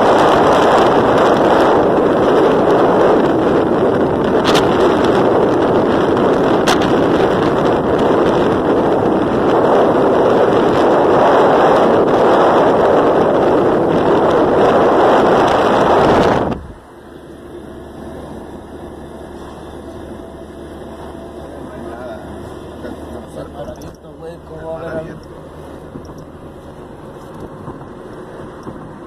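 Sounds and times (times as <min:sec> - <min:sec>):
car cabin hum: 0:00.0 - 0:29.0
wind and road noise: 0:00.0 - 0:29.0.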